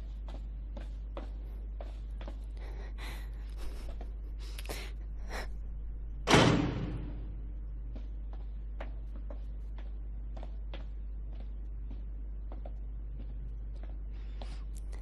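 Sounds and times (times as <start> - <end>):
footsteps on stone floor: 0.0 - 2.7, 7.6 - 15.0
heavy echoing slam: 6.2 - 7.5.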